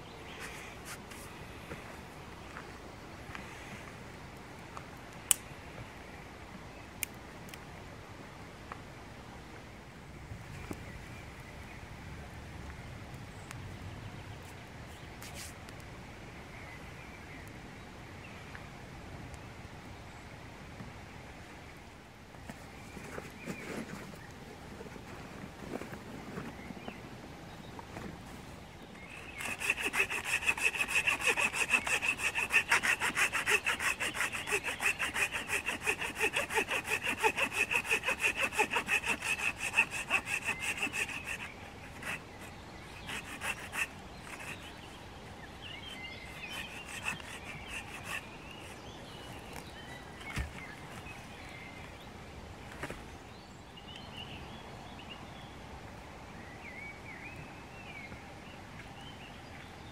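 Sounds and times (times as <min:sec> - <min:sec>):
hand saw cutting wood: 0:29.0 - 0:45.0, 0:45.7 - 0:48.8.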